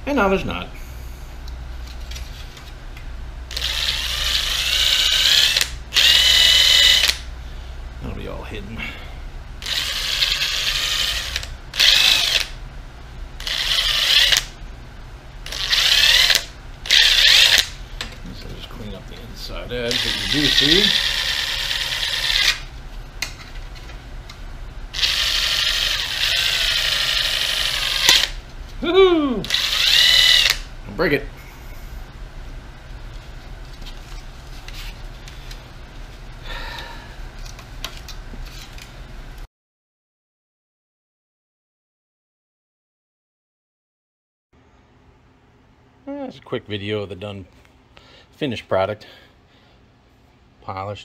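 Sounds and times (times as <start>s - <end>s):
drill whining: 3.5s - 7.3s, 9.6s - 12.6s, 13.4s - 14.5s, 15.4s - 17.8s, 19.8s - 22.7s, 24.9s - 28.4s, 29.4s - 30.7s
small power tool running: 3.5s - 7.3s, 9.6s - 12.6s, 13.4s - 14.5s, 15.4s - 17.8s, 19.8s - 22.7s, 24.9s - 28.4s, 29.4s - 30.7s.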